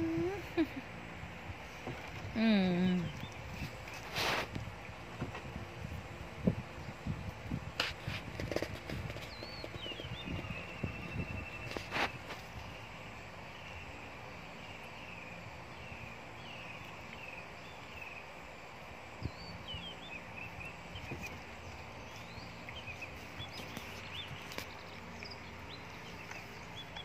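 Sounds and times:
steady background hiss: 10.8s - 27.0s.

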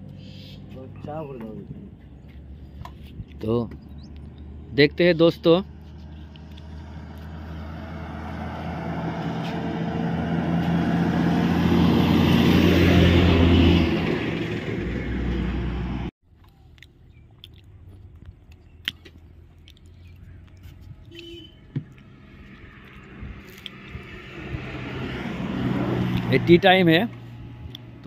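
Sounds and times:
heavy truck passing: 3.4s - 16.1s, 21.6s - 28.0s.

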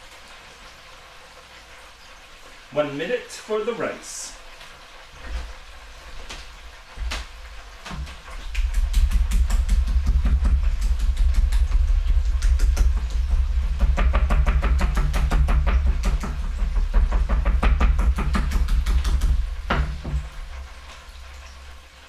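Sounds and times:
meat mallet thudding on board: 7.9s - 20.3s.

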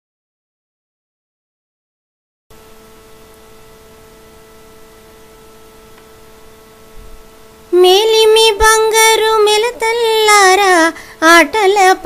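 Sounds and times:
faint musical drone: 2.6s - 12.0s.

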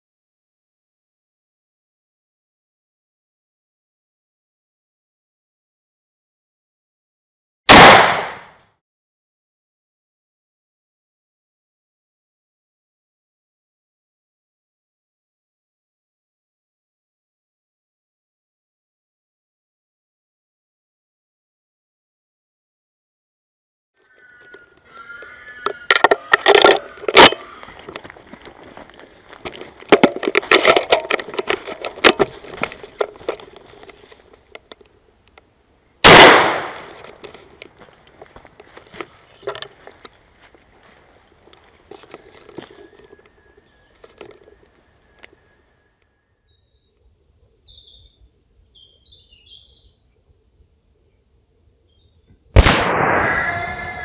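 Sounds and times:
loud gunshot: 7.7s - 8.6s, 36.0s - 36.9s, 52.6s - 54.0s
footsteps crashing through brush: 27.2s - 34.2s
small birds chirping: 40.7s - 50.4s.

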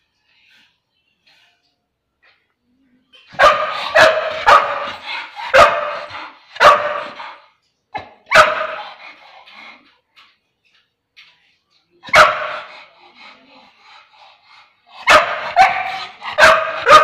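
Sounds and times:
dog barking: 3.3s - 7.4s, 8.3s - 9.0s, 12.1s - 12.8s, 15.0s - 17.0s.

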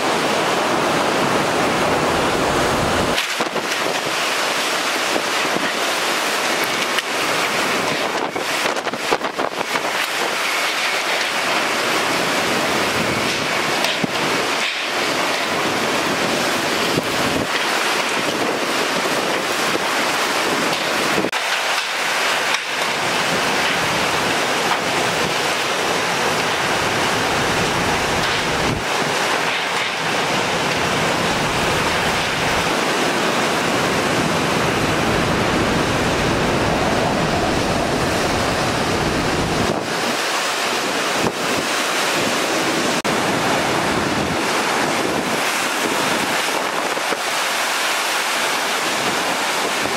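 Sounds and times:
wind buffeting microphone: 0.0s - 10.9s, 22.4s - 47.5s
heavy rain: 0.0s - 49.9s
hurricane-force wind: 0.0s - 49.9s.

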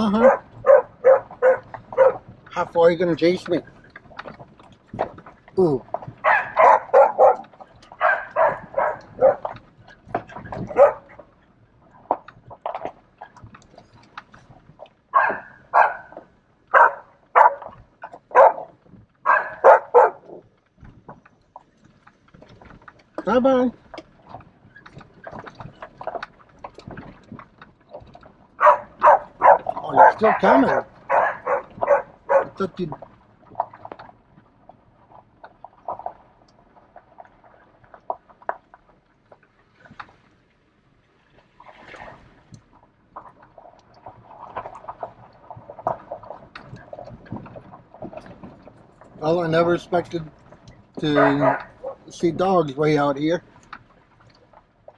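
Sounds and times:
dog barking: 0.2s - 2.2s, 6.2s - 9.5s, 10.6s - 11.1s, 15.1s - 20.4s, 28.6s - 32.6s, 51.1s - 52.1s.

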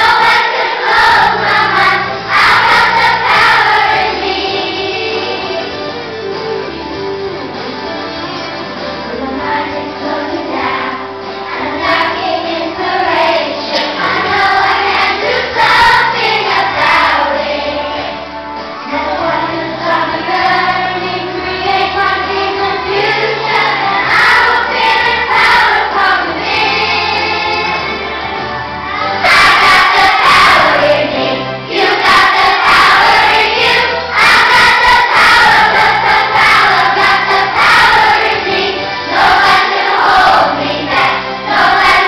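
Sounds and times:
children's choir singing: 0.0s - 7.6s, 9.0s - 42.0s.

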